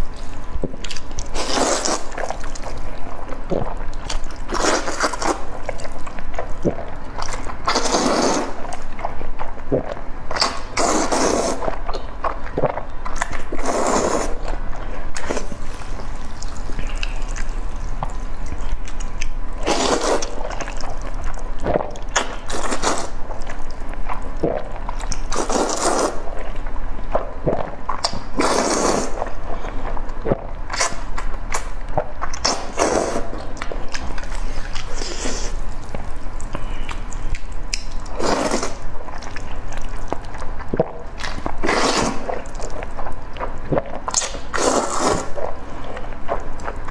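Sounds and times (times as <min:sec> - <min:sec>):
soft wet mouth sounds: 0:00.0 - 0:46.9
wet noodle slurps: 0:01.2 - 0:02.8, 0:03.5 - 0:06.0, 0:06.6 - 0:08.8, 0:10.3 - 0:12.0, 0:12.6 - 0:14.6, 0:19.6 - 0:23.6, 0:24.4 - 0:26.4, 0:27.5 - 0:29.4, 0:32.4 - 0:40.1, 0:40.8 - 0:42.8, 0:43.7 - 0:45.5.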